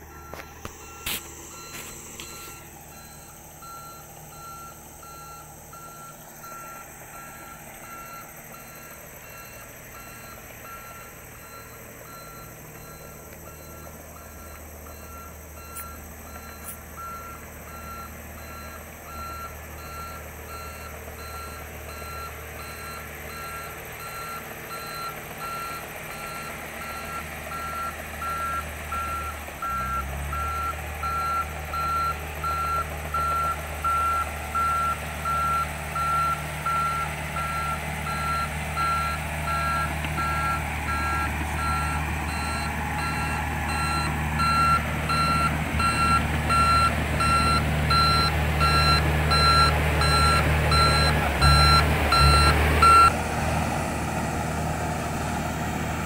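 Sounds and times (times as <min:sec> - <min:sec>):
bulldozer diesel engine running: 0:00.0 - 0:56.0
reverse alarm beeping: 0:00.1 - 0:53.2.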